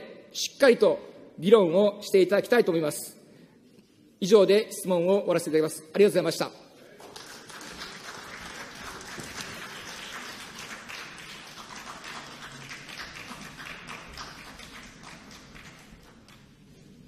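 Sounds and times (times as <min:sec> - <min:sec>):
crowd applause: 0:06.9 - 0:16.5.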